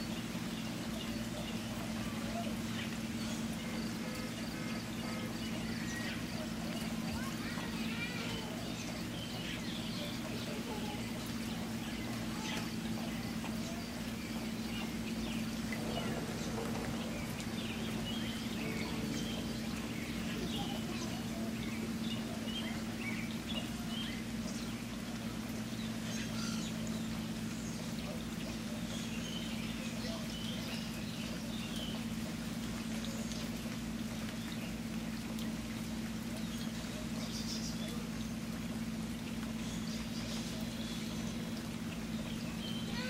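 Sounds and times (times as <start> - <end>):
birds chirping: 0.0 - 43.0
running water: 0.0 - 43.0
low hum: 11.2 - 26.1.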